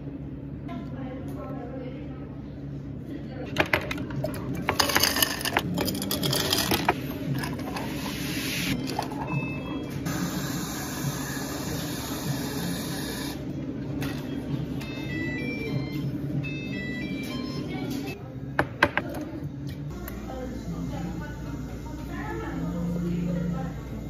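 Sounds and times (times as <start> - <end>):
low equipment hum: 0.0 - 24.0
ice clattering into glass jars: 4.6 - 7.8.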